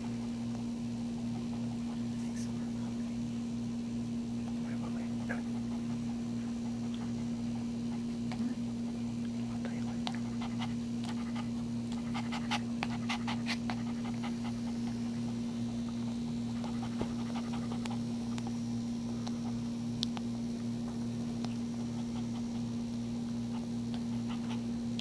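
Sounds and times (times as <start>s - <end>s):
steady hum: 0.0s - 25.0s
dog panting: 1.3s - 2.3s, 4.5s - 18.6s, 21.5s - 24.7s.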